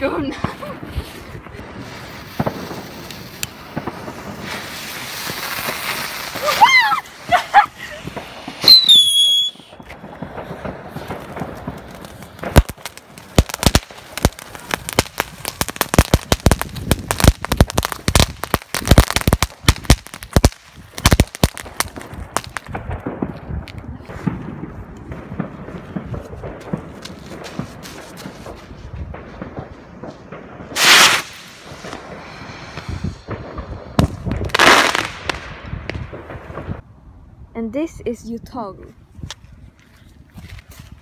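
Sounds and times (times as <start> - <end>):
fountain fireworks hissing and crackling: 0.0 - 22.8, 30.6 - 35.2.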